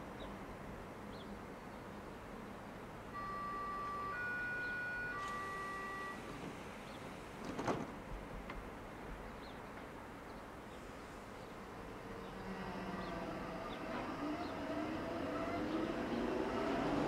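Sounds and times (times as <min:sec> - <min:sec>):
electric train drive whining: 0:03.2 - 0:07.2, 0:11.9 - 0:17.0.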